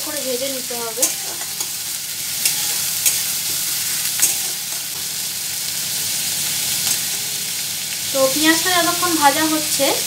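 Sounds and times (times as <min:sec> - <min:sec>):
onions sizzling in oil: 0:00.0 - 0:10.0
spatula scraping a pan: 0:01.0 - 0:05.0.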